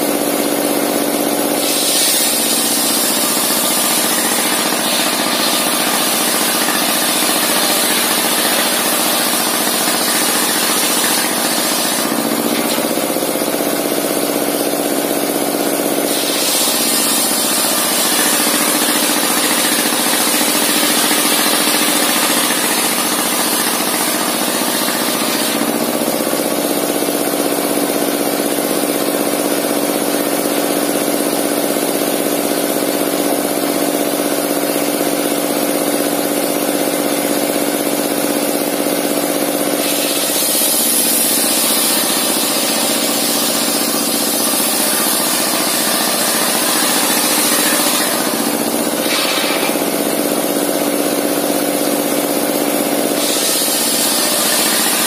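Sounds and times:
circular saw humming: 1.1 - 26.5, 39.1 - 51.6
saw blade cutting wood hiss: 1.3 - 26.6, 39.6 - 50.7, 52.9 - 55.0.

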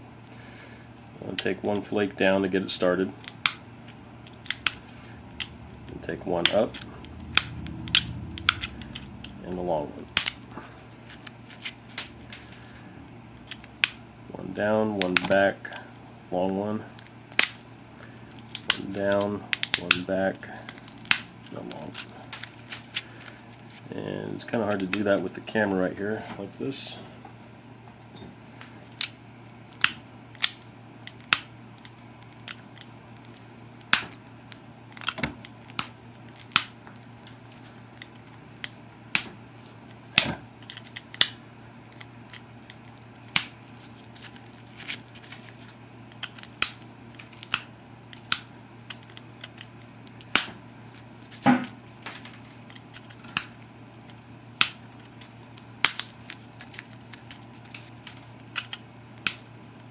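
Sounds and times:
stone flaking clicks and snaps: 4.2 - 4.8, 46.1 - 50.6, 52.7 - 57.8, 58.5 - 59.4.

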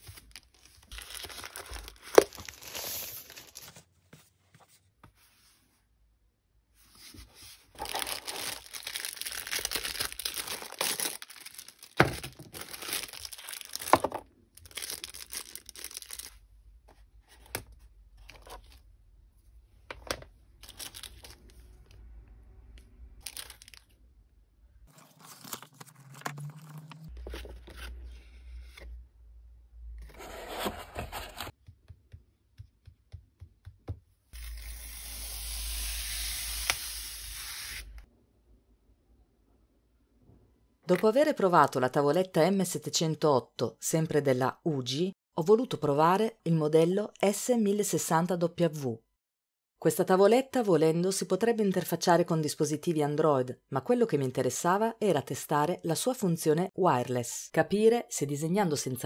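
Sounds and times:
plastic packaging rustling: 0.0 - 3.9, 7.7 - 16.4, 20.6 - 21.5, 23.2 - 24.0, 24.9 - 28.0.

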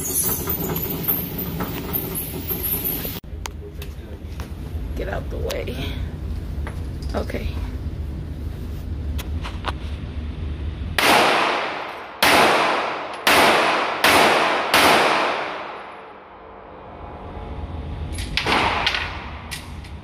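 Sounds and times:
gunshots echoing: 11.0 - 16.2.

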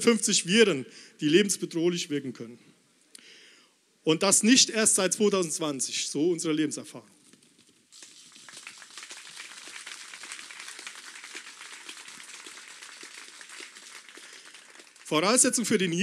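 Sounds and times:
faint crowd applause: 8.0 - 15.8.

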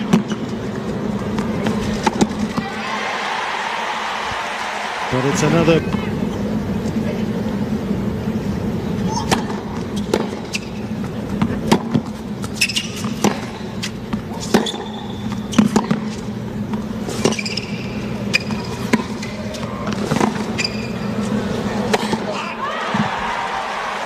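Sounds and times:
crowd murmur: 0.8 - 9.9
tennis ball hit with rackets: 11.4 - 12.1, 12.8 - 16.2
sneaker squeaks on court: 12.5 - 13.7, 14.5 - 16.1, 17.2 - 19.4, 20.5 - 21.2.

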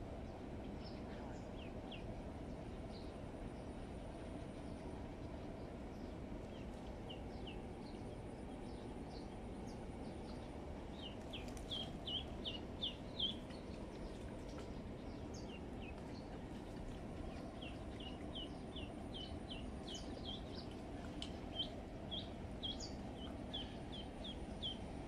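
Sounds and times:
low outdoor background noise: 0.0 - 25.0
duckling peeping: 11.0 - 13.7, 17.6 - 24.8.

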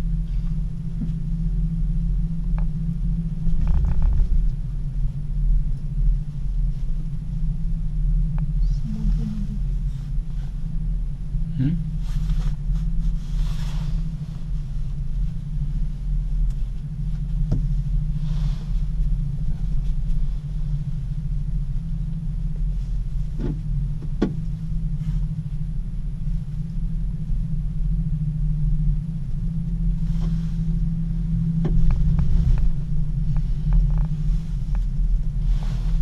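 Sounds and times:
gondola cabin rumble: 0.0 - 36.0
knocks and creaks: 3.4 - 4.8, 31.5 - 35.0.

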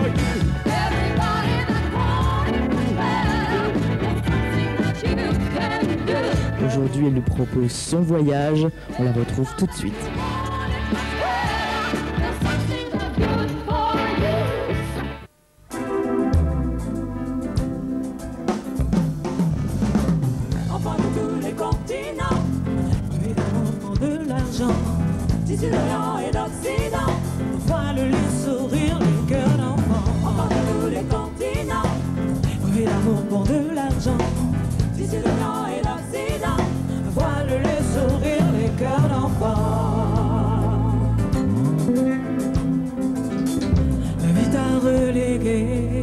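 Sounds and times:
women singing: 0.0 - 6.8, 8.8 - 15.0, 20.6 - 41.3, 44.2 - 46.0
bass guitar: 0.0 - 46.0
drum kit: 0.0 - 46.0
keyboards: 0.0 - 46.0.

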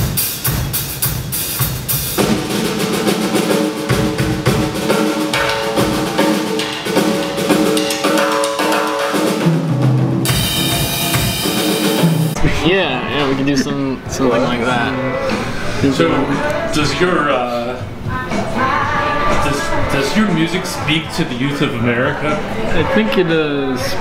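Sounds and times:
drum kit beat: 0.0 - 12.4
rock band playing: 0.0 - 12.6.

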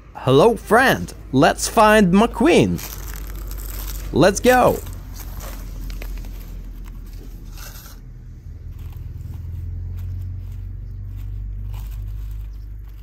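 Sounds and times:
steady low rumble: 0.0 - 13.0
plastic scraping and crinkling: 2.7 - 13.0.

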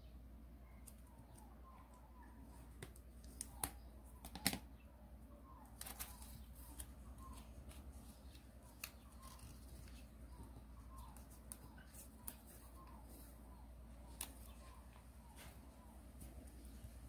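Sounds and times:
paper rustling and crinkling: 5.7 - 13.4.

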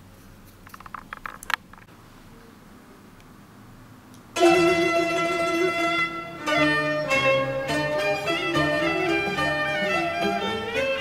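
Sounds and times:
string instrument music: 4.4 - 11.0.

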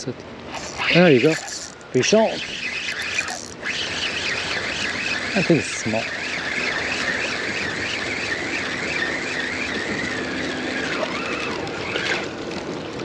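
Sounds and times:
fishing reel gear whine: 0.5 - 12.6.

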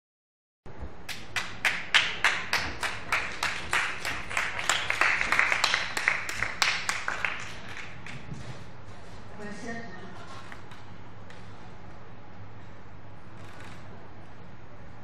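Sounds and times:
people clapping in rhythm: 1.1 - 8.4.

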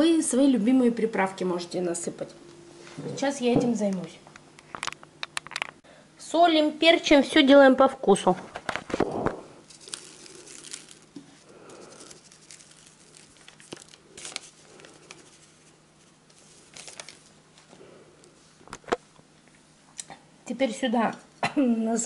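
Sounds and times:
spice sachet crinkling and tearing: 9.6 - 17.4.

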